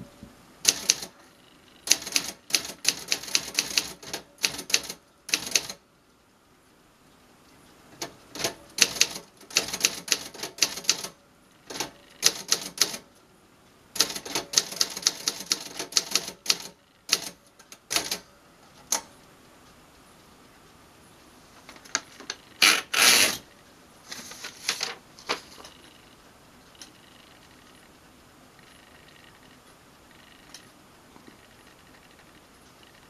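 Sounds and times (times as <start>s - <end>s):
paper drawn out of typewriter: 22.6s - 23.4s.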